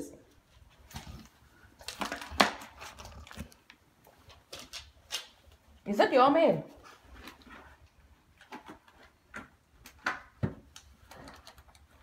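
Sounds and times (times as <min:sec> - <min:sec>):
plastic mailer crinkling: 0:00.9 - 0:03.8.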